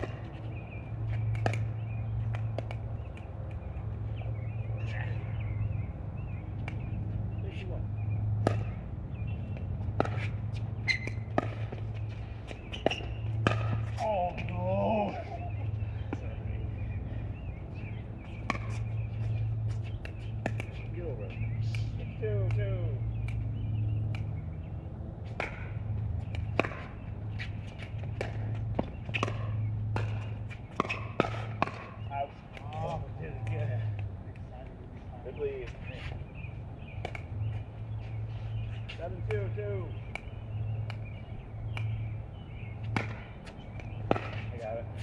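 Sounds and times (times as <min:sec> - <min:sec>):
ball bouncing on court: 0:00.0 - 0:03.3, 0:08.3 - 0:16.4, 0:18.3 - 0:33.8, 0:36.9 - 0:37.5, 0:39.0 - 0:42.1, 0:42.8 - 0:45.0
paddles striking pickleball: 0:00.0 - 0:03.6, 0:06.6 - 0:07.0, 0:08.4 - 0:15.5, 0:18.2 - 0:34.5, 0:36.4 - 0:45.0.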